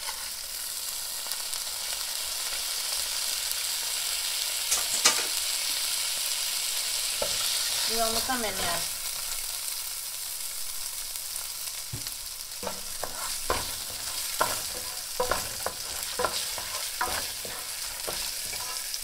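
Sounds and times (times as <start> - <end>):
rice sizzling in oil: 0.0 - 19.0
wooden spoon scraping pan: 12.6 - 19.0.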